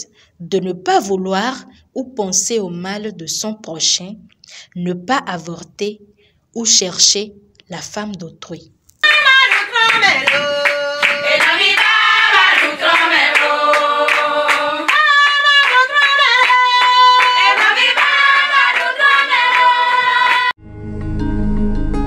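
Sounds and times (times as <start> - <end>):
hand-clapping: 9.0 - 20.5
women singing: 9.0 - 20.6.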